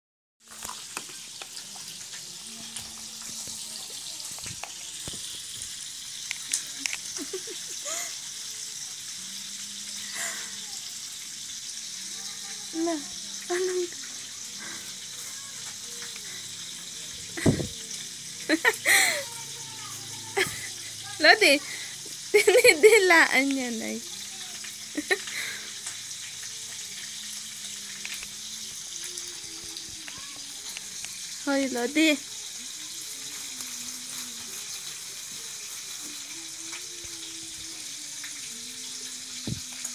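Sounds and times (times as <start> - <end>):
food frying in oil: 0.4 - 39.9
steady hiss: 0.5 - 39.9
plastic bag crinkling: 33.2 - 36.3.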